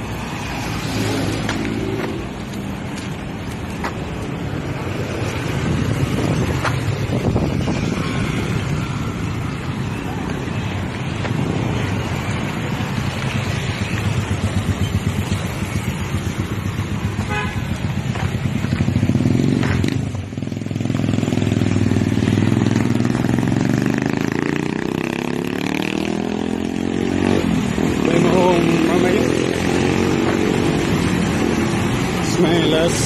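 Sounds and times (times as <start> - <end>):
vehicle accelerating: 0.0 - 17.1, 18.0 - 33.0
motorcycle and car engines passing: 0.0 - 33.0
car horn toot: 17.2 - 17.7.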